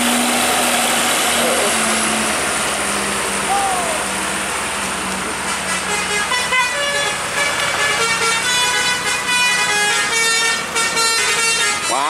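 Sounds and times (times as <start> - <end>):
heavy truck engine running: 0.0 - 12.0
melodic multi-tone vehicle horn: 5.5 - 12.0.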